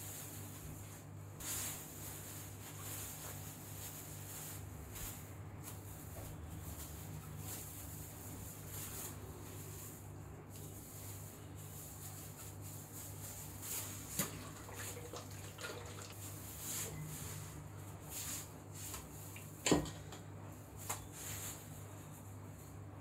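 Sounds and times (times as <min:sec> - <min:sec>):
rustles: 0:00.0 - 0:14.2.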